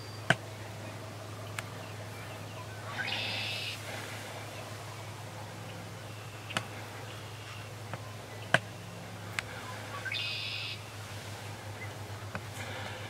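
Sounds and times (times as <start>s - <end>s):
low hum: 0.0s - 13.0s
high bird call: 2.1s - 4.8s, 9.4s - 11.0s.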